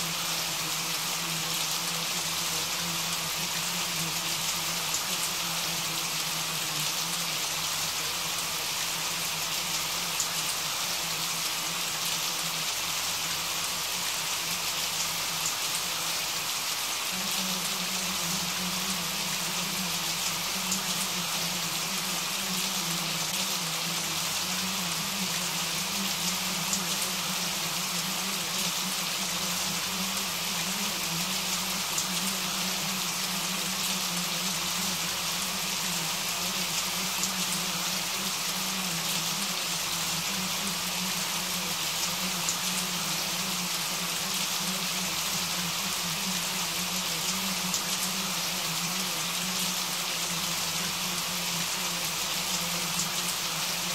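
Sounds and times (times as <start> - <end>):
steady rain falling: 0.0 - 53.9.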